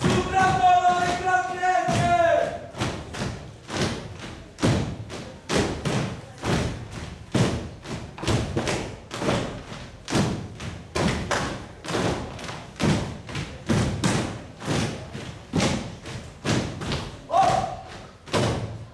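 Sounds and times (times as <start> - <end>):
many feet stamping: 0.0 - 18.9.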